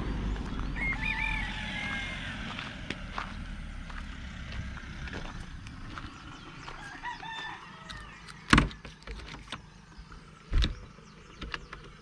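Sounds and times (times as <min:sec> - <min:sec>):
rooster crowing: 0:00.5 - 0:02.9, 0:06.6 - 0:08.2.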